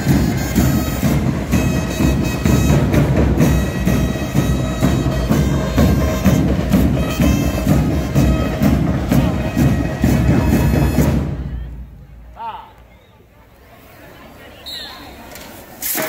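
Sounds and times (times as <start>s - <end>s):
drums march beat: 0.0s - 11.6s
marching band playing: 0.0s - 12.1s.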